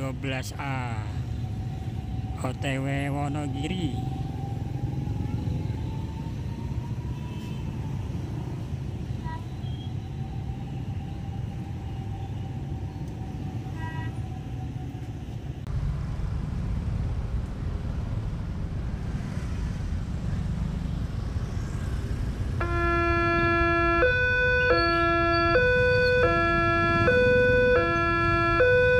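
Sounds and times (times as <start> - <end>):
motorcycle and car engines: 3.9 - 9.8, 15.3 - 24.1
diesel railbus rumbling: 24.6 - 28.6.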